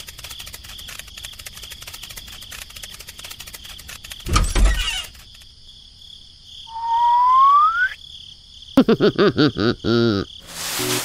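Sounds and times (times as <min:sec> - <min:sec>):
cricket-like chirping: 0:00.0 - 0:11.0
rising whistle-like squeak: 0:06.7 - 0:08.0.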